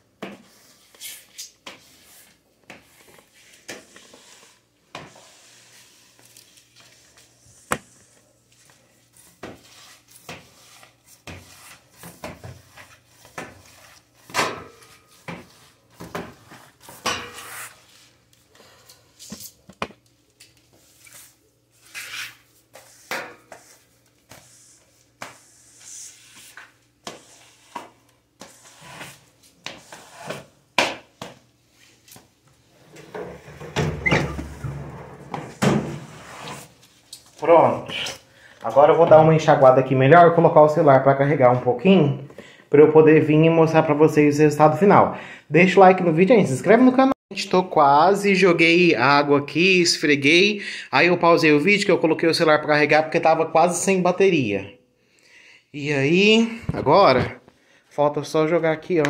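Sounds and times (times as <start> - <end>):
squeegee scraping water on tile: 0.7 - 7.2, 24.4 - 30.5.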